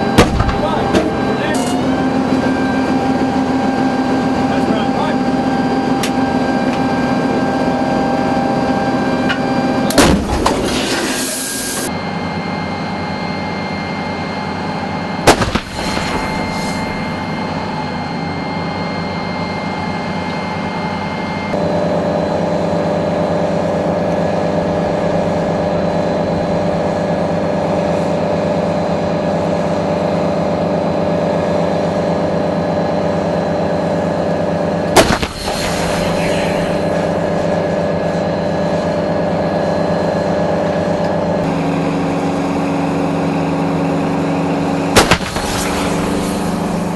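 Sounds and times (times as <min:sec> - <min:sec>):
engine hum: 0:00.0 - 0:46.9
artillery gun firing: 0:00.2 - 0:00.8, 0:10.0 - 0:10.9, 0:15.2 - 0:16.8, 0:34.9 - 0:37.0, 0:44.9 - 0:46.8.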